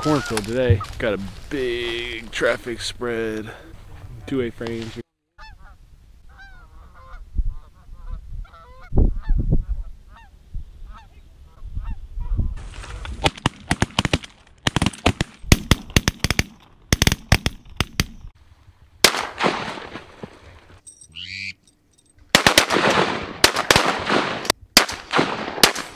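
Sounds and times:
geese honking: 0.0s - 1.0s, 5.4s - 9.3s, 21.2s - 21.6s
low wind rumble: 5.5s - 13.2s
shotgun shots: 19.0s - 20.2s, 22.3s - 25.9s.

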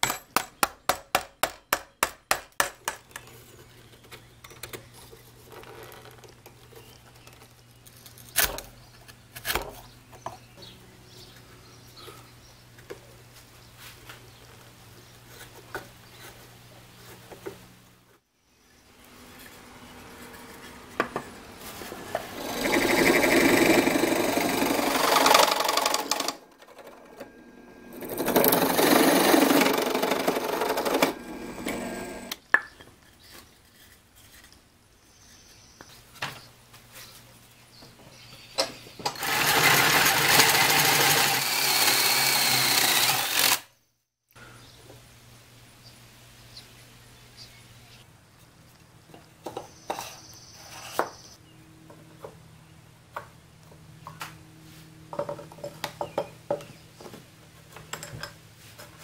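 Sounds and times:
power drill drilling into wood: 28.0s - 32.4s, 39.2s - 43.7s.

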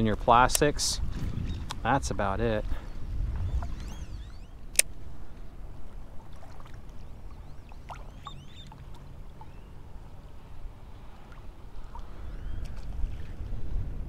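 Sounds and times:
water lapping and sloshing: 2.6s - 14.0s
faint bird chirps: 2.8s - 4.7s, 6.9s - 9.8s, 11.8s - 12.8s.

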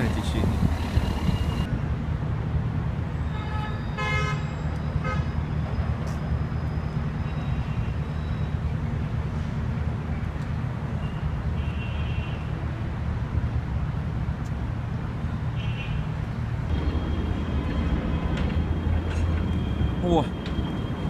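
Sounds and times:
city traffic rumble: 0.0s - 21.0s.

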